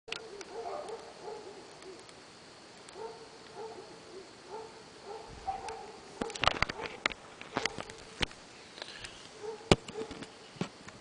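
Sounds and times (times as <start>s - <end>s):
distant dogs barking: 0.1s - 2.1s, 2.9s - 8.2s, 9.3s - 10.4s.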